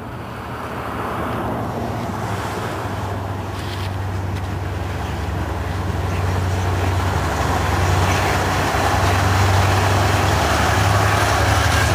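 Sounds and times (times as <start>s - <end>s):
passenger train rumbling past: 0.0s - 11.9s.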